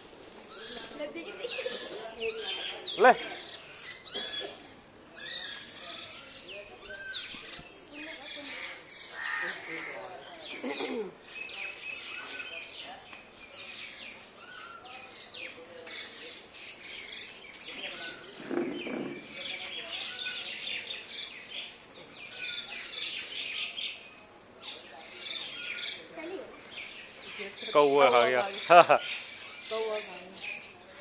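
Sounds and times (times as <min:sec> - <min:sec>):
birds chirping and calling: 0:00.3 - 0:31.0.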